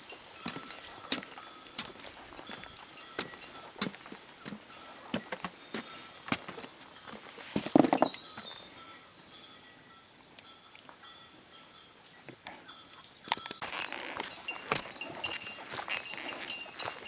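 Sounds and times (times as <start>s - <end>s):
footsteps on rocky trail: 0.0s - 8.6s, 13.3s - 17.0s
songbirds singing: 0.0s - 10.5s.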